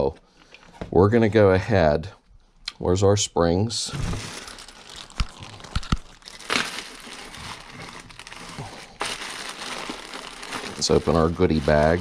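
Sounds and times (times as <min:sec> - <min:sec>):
plastic bag crinkling: 0:04.1 - 0:12.0.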